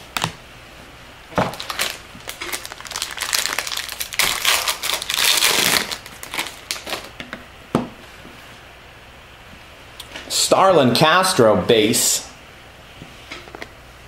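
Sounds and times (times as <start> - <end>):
foil wrapper crinkling and tearing: 1.5 - 7.1.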